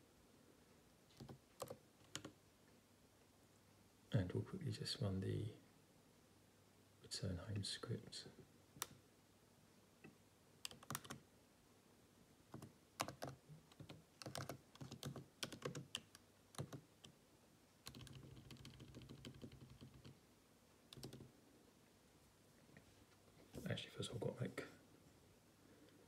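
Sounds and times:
keystrokes on computer keyboard: 0:01.1 - 0:02.4, 0:10.6 - 0:11.2, 0:12.5 - 0:17.2, 0:17.8 - 0:20.2, 0:20.9 - 0:21.3.

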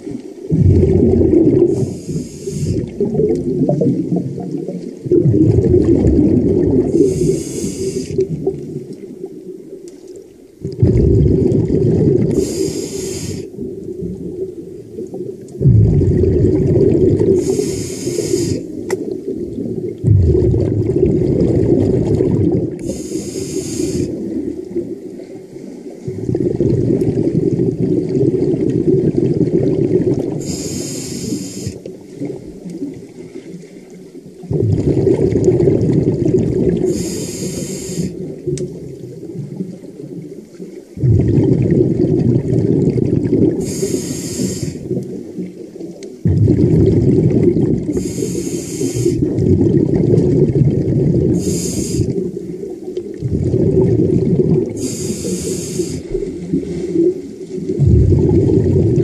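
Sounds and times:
exhaled air bubbling: 0:00.0 - 0:59.0
regulator inhale hiss: 0:01.8 - 0:03.0, 0:07.0 - 0:08.3, 0:12.3 - 0:13.6, 0:17.3 - 0:18.8, 0:22.8 - 0:24.2, 0:30.4 - 0:31.9, 0:36.8 - 0:38.2, 0:43.6 - 0:44.9, 0:47.9 - 0:49.2, 0:51.3 - 0:52.2, 0:54.8 - 0:57.1.

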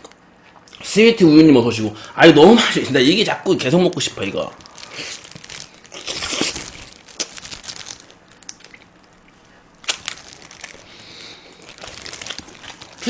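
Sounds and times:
person chewing food: 0:04.6 - 0:13.0.

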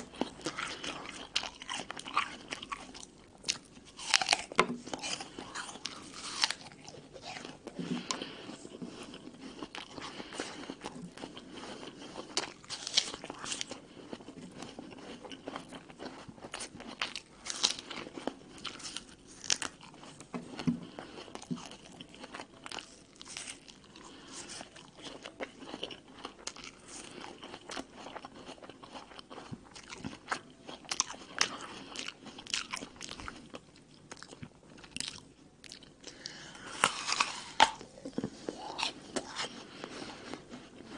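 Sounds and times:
person chewing crisp apple: 0:00.0 - 0:40.9.

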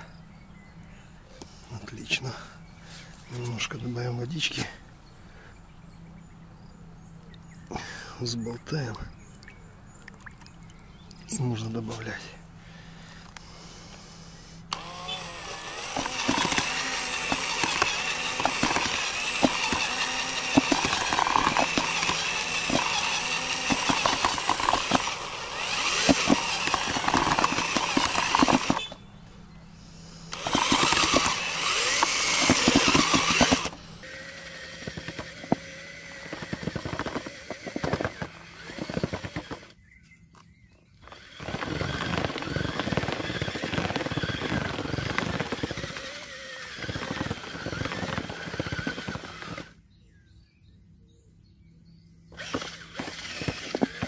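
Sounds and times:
drill with mixer paddle running: 0:14.2 - 0:29.0, 0:29.8 - 0:39.8, 0:41.0 - 0:49.8, 0:52.3 - 0:54.0
gritty knocks of churning mix: 0:15.8 - 0:28.8.

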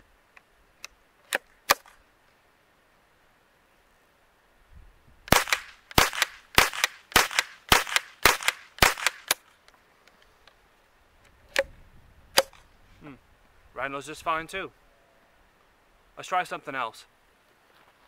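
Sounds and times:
rifle shots: 0:05.3 - 0:09.4.

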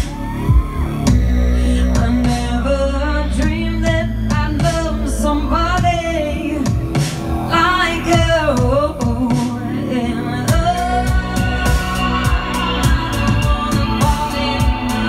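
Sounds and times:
electronic backing track: 0:00.0 - 0:15.0
sustained bass line: 0:00.0 - 0:15.0
woman singing into a microphone: 0:01.2 - 0:15.0
regular drum beat: 0:05.8 - 0:07.4, 0:10.5 - 0:15.0.

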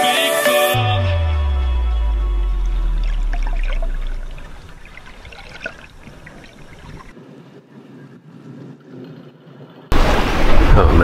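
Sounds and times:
low rumble: 0:00.8 - 0:07.1
underwater water sound: 0:00.8 - 0:07.2, 0:08.9 - 0:11.0.

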